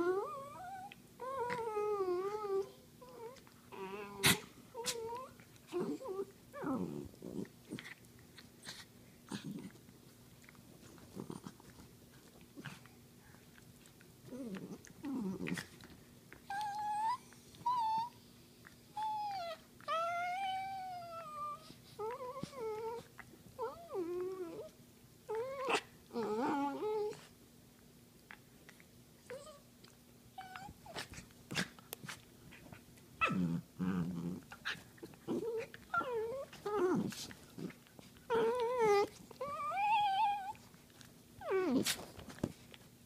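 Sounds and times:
dogs play-growling: 0:00.0 - 0:27.4, 0:28.2 - 0:42.9
dog whining cries: 0:16.5 - 0:18.2, 0:25.3 - 0:27.3, 0:30.4 - 0:31.1, 0:35.4 - 0:37.0, 0:38.3 - 0:40.6.

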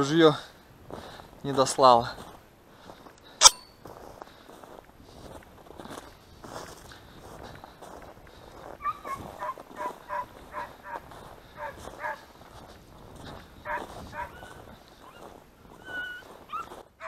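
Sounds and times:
hounds baying: 0:08.8 - 0:12.4, 0:13.3 - 0:17.0.

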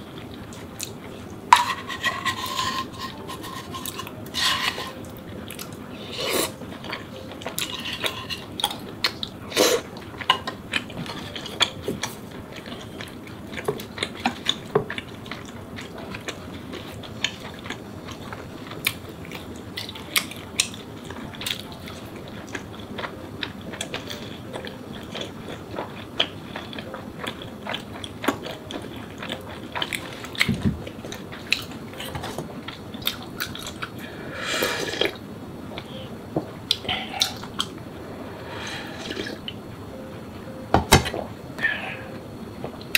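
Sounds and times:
chewing: 0:00.1 - 0:34.0, 0:36.7 - 0:37.8
slurping broth: 0:06.1 - 0:06.6, 0:34.3 - 0:35.2, 0:38.4 - 0:39.5.

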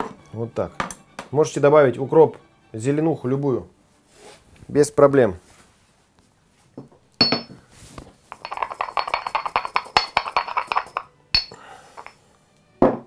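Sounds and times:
pestle clinking in stone mortar: 0:07.2 - 0:07.5, 0:08.3 - 0:12.2
pestle grinding seeds: 0:08.3 - 0:12.2.

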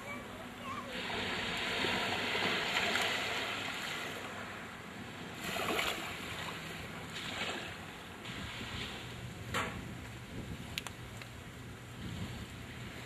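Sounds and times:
small waves washing on sand: 0:00.0 - 0:09.4.

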